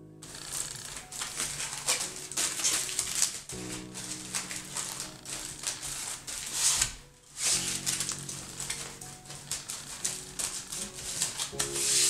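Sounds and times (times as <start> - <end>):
quiet music of held notes: 0.0 - 12.0
aluminium foil crinkling: 0.2 - 12.0.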